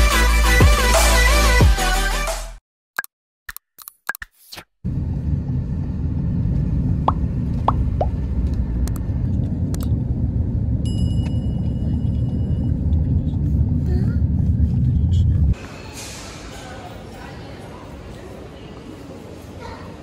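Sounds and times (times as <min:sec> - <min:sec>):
bell chime: 0:10.9 - 0:12.7.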